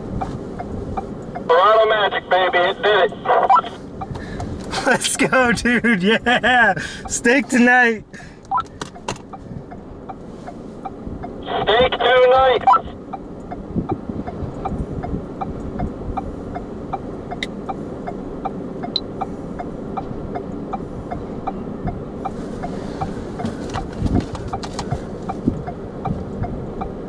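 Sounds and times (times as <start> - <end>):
vehicle idling rumble: 0.0 - 27.0
light ticking: 13.0 - 22.4.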